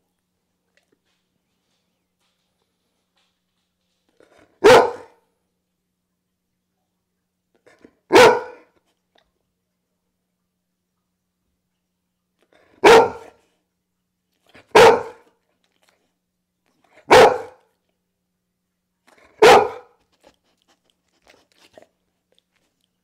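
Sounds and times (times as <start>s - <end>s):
dog barking: 4.4s - 5.2s, 8.1s - 8.8s, 12.7s - 13.4s, 14.6s - 15.3s, 16.9s - 17.7s, 19.2s - 20.0s.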